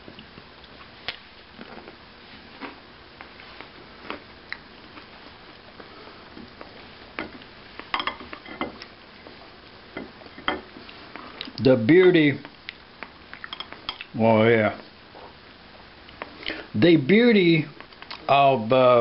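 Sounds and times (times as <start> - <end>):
room hiss: 0.0 - 19.0
utensils clinking on ceramic bowl: 8.0 - 8.8, 13.5 - 14.0.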